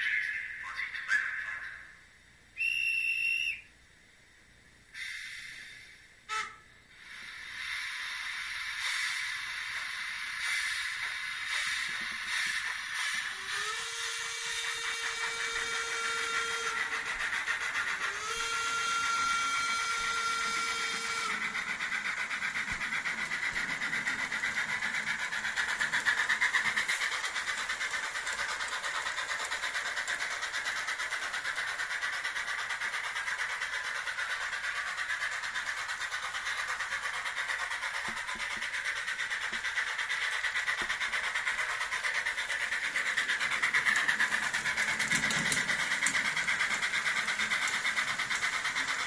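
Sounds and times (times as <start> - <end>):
model train ticking rhythm: 4.9 - 49.0
long steady tones: 18.0 - 21.6.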